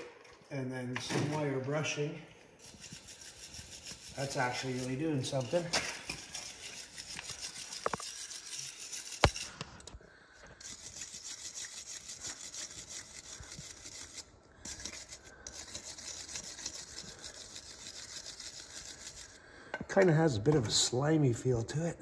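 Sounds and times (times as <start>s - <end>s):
wire brush scrubbing metal: 2.6s - 9.6s, 10.6s - 19.4s.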